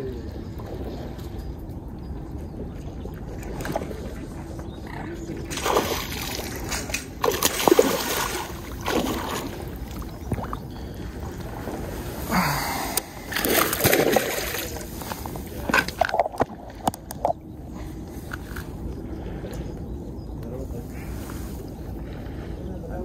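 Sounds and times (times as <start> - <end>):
fish splashing at water surface: 5.5 - 10.6, 13.1 - 15.0.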